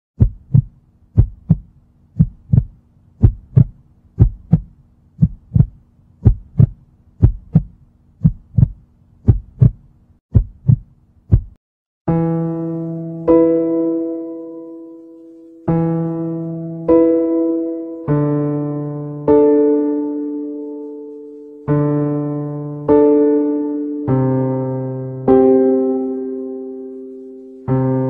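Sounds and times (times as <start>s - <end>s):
faint steady hum: 0.2s - 10.2s
heartbeat thumps: 0.2s - 11.6s.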